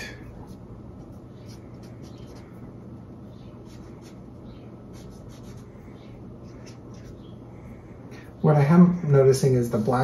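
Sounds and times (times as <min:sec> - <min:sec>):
marker scratching on paper: 0:00.0 - 0:08.0
steady low hum: 0:00.0 - 0:10.0.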